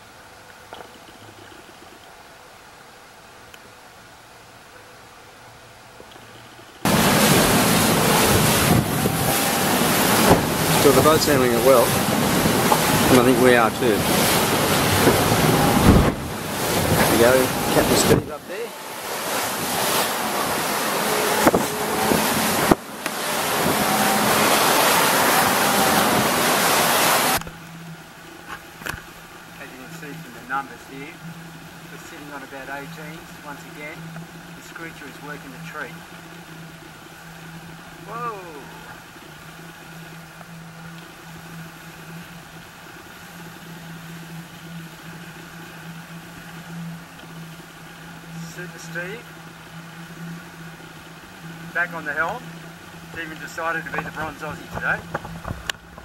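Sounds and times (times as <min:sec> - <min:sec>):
low engine hum: 0:00.0 - 0:56.0
wind on microphone: 0:06.8 - 0:27.5, 0:53.9 - 0:56.0
water rushing past hull: 0:06.8 - 0:56.0.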